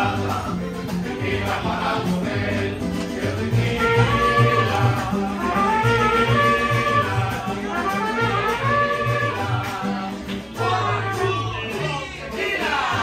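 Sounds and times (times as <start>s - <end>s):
mariachi band playing: 0.0s - 13.0s
trumpets: 3.6s - 9.9s, 10.6s - 11.8s.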